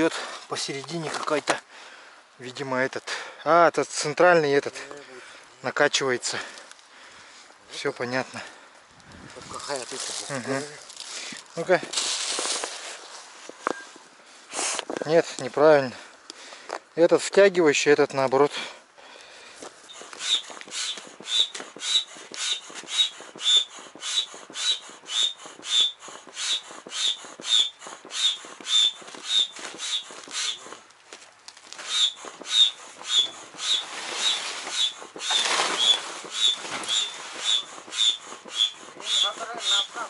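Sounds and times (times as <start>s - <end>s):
foot pump strokes with air whistle: 19.8s - 30.9s, 31.7s - 40.0s.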